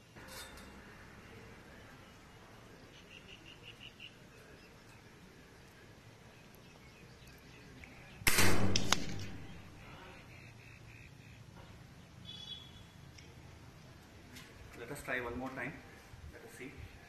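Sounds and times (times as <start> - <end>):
air rifle shot: 8.2 - 9.9
sharp click: 8.3 - 9.6.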